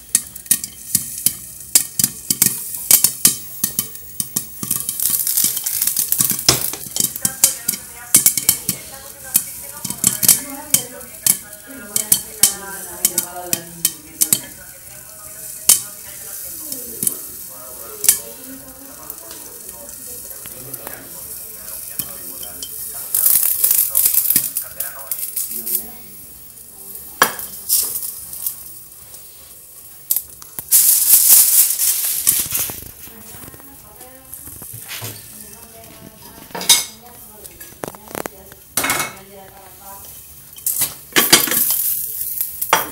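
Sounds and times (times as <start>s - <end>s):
popcorn popping: 0.0s - 29.1s, 29.9s - 42.9s
hot oil sizzling: 0.0s - 42.9s.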